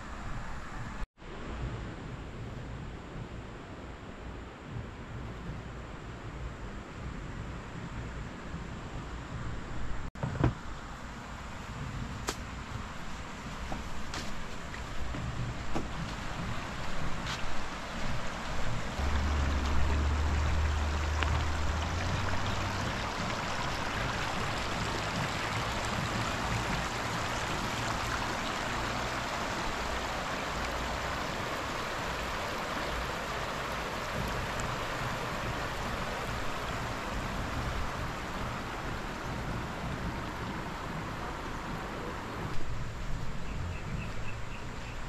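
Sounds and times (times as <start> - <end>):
river flowing over gravel: 10.6 - 45.0
low rumble: 18.1 - 29.0.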